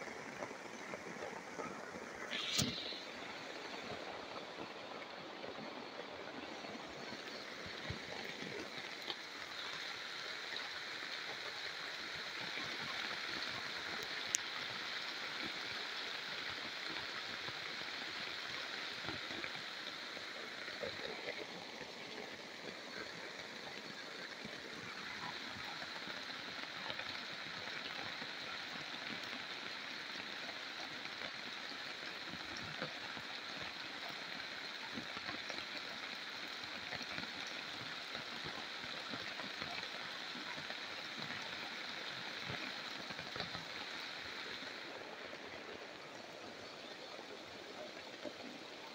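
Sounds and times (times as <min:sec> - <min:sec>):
rain on foliage and tarp: 0:00.0 - 0:48.9
high-pitched hiss: 0:02.2 - 0:04.1.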